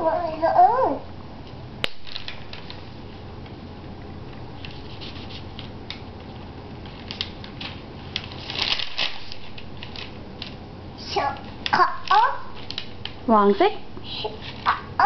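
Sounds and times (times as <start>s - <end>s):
paper rustling: 1.8s - 3.1s, 4.6s - 10.6s, 11.3s - 13.2s, 14.2s - 14.9s.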